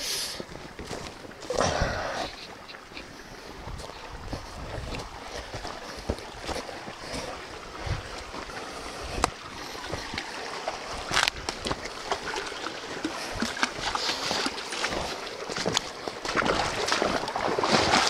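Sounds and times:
running water: 0.0 - 18.0
footsteps through undergrowth: 3.7 - 7.4.

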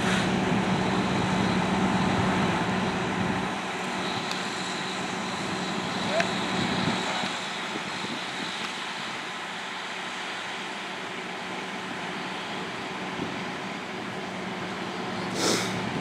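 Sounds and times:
engine drone: 0.0 - 16.0
even hiss: 15.3 - 15.8.

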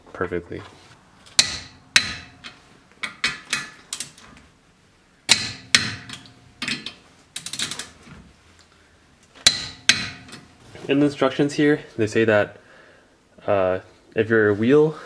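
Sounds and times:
metal socket clicking on nuts: 1.4 - 4.2, 5.3 - 8.0.

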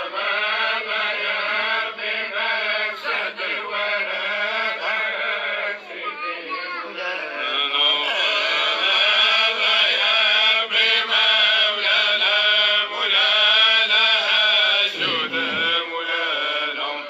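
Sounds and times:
person chanting: 11.7 - 17.0.

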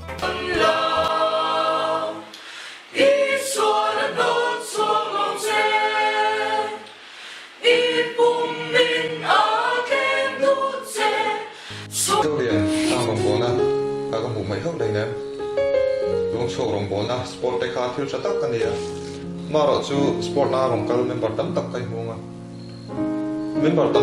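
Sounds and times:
mixed choir singing a cappella: 0.1 - 13.4.

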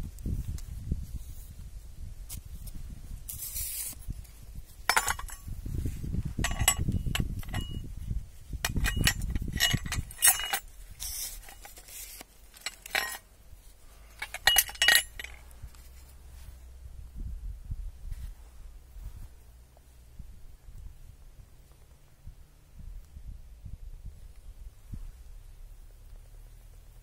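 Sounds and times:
handling rustle: 0.2 - 16.8
metal chain links clinking: 4.9 - 5.5, 6.4 - 7.9, 8.6 - 13.3, 14.0 - 15.5.

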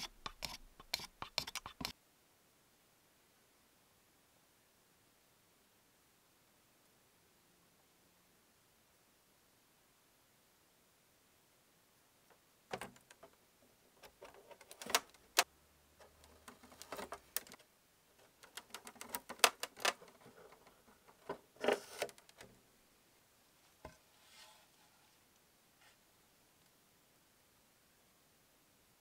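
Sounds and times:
small parts clicking and tapping: 12.7 - 13.4, 14.0 - 17.6, 18.2 - 22.5.

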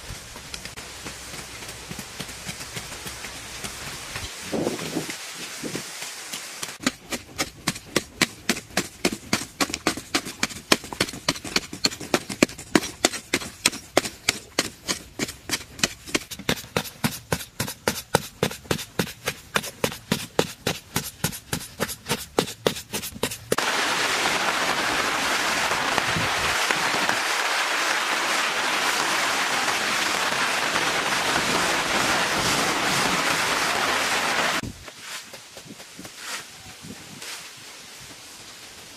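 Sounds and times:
steady hiss-like noise: 0.0 - 6.8, 23.6 - 38.9.

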